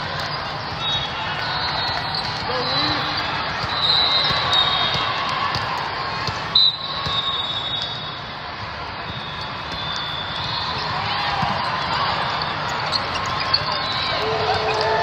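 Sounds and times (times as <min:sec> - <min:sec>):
crowd chatter: 0:00.0 - 0:15.0
volleyballs thudding: 0:01.8 - 0:08.0, 0:08.9 - 0:12.0
referee whistle blast: 0:03.7 - 0:05.0, 0:06.5 - 0:08.2.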